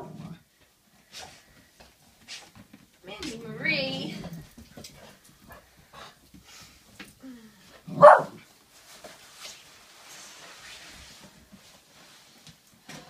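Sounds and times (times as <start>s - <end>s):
dog barking: 7.9s - 8.4s
soft rustle: 8.4s - 13.0s.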